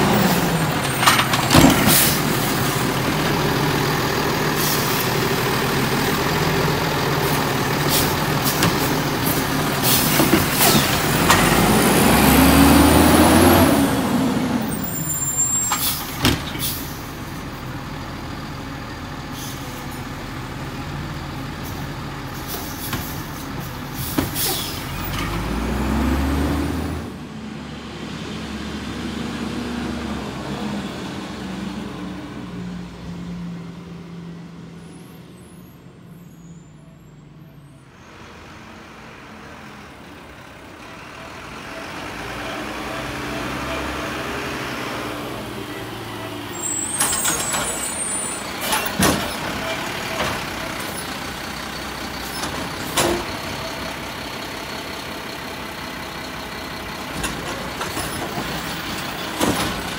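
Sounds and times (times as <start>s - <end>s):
cart and arm clanking: 0.0s - 3.6s, 46.2s - 54.0s, 56.9s - 59.9s
diesel engine revving: 0.0s - 36.5s, 37.4s - 59.9s.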